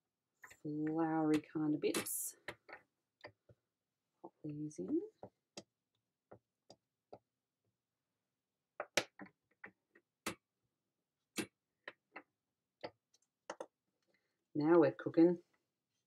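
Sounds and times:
plastic clicks and taps: 11.4 - 13.7.

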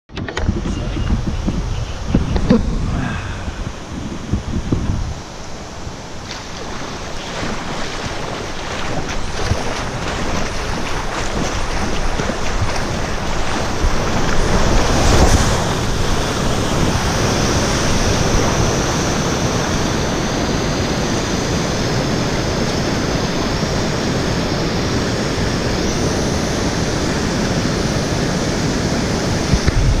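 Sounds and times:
wind buffeting microphone: 0.1 - 30.0
waterfall rushing: 0.7 - 24.2.

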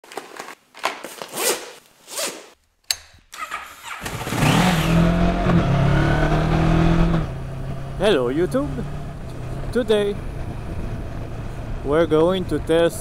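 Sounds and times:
motorcycle engine running: 4.0 - 13.0.

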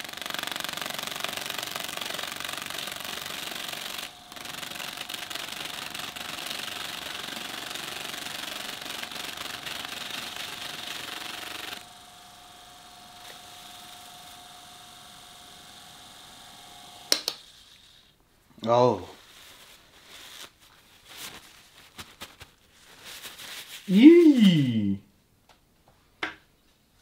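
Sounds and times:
fan motor hum: 0.0 - 18.0.

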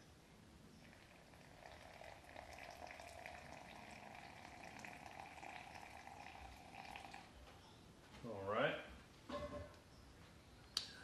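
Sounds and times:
water pouring in thin stream: 0.8 - 7.3.

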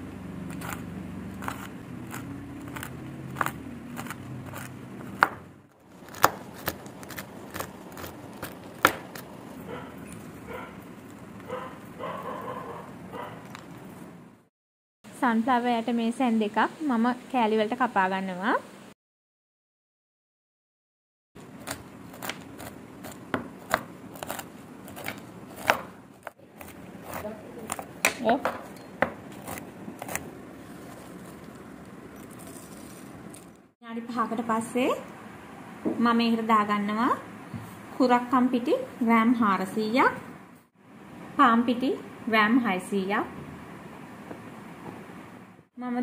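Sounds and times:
knife chopping on wooden board: 1.4 - 9.3, 21.7 - 30.2.

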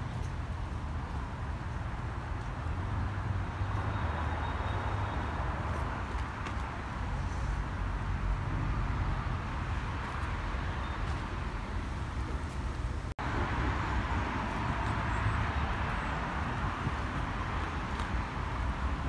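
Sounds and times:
road traffic hiss: 0.0 - 19.0
wind rumble on microphone: 12.0 - 19.0.

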